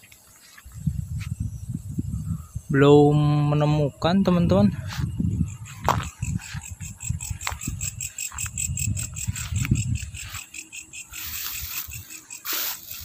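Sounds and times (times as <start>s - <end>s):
insects chirping: 0.0s - 13.0s
microphone handling thumps: 4.9s - 10.1s
footsteps through grass: 7.3s - 13.0s.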